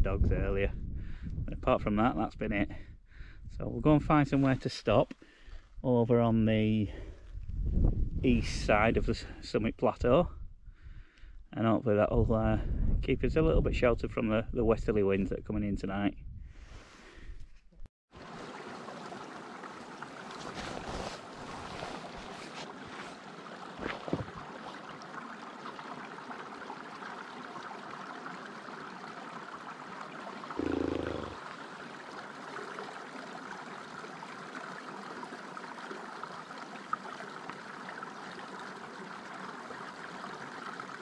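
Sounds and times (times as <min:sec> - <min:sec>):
water trickling: 0:18.2 - 0:41.0.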